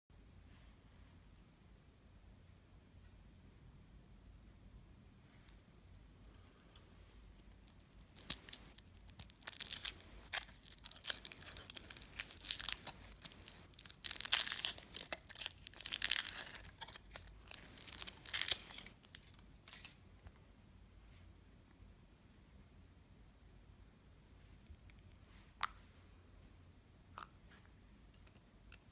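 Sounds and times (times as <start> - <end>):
foil wrapper crinkling and tearing: 7.4 - 20.0.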